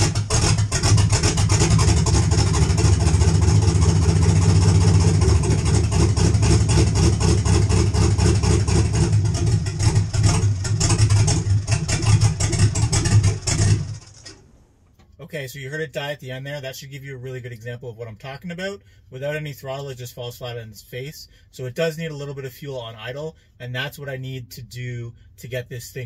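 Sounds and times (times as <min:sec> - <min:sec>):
loud choppy engine revving: 0:00.0 - 0:14.4.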